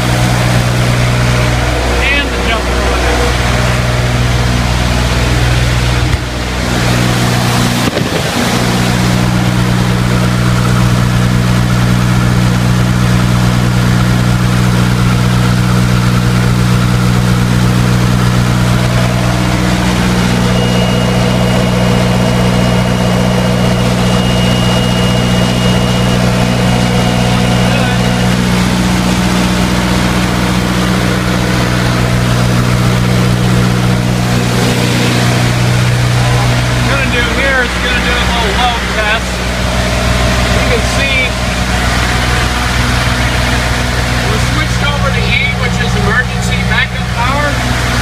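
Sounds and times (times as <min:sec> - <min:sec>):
diesel generator engine running: 0:00.0 - 0:48.0
thin high whine: 0:17.2 - 0:47.6.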